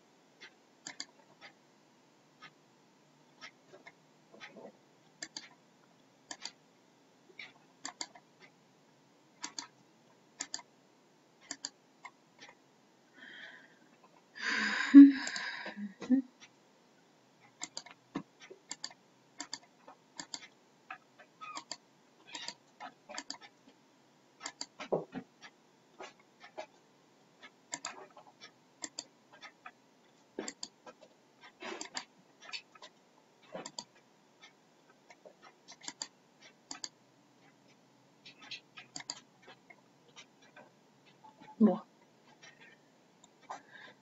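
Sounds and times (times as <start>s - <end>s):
computer mouse clicks: 0.8s - 1.2s, 5.2s - 5.6s, 6.3s - 6.6s, 7.4s - 8.2s, 9.4s - 9.8s, 10.4s - 10.7s, 11.5s - 12.2s, 17.5s - 20.6s, 21.5s - 23.5s, 24.4s - 24.9s, 27.7s - 28.0s, 28.8s - 29.6s, 30.4s - 30.8s, 31.8s - 32.6s, 33.5s - 33.9s, 35.1s - 36.1s, 36.7s - 37.6s, 38.4s - 39.2s.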